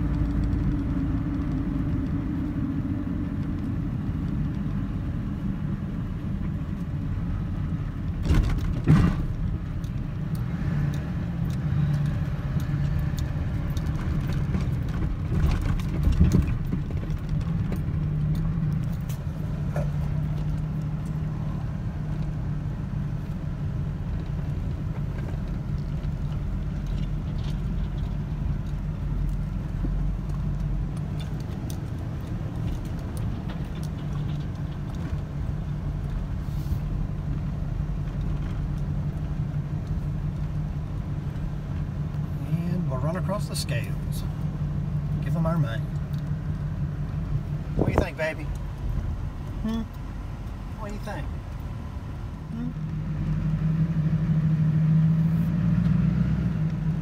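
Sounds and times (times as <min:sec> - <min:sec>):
engine and tyre rumble: 0:00.0 - 0:57.0
knocks and rattles: 0:13.8 - 0:18.9.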